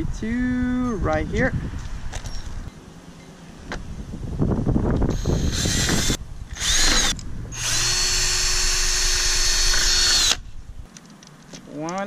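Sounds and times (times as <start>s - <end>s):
cordless drill drilling into plastic: 5.1s - 10.4s.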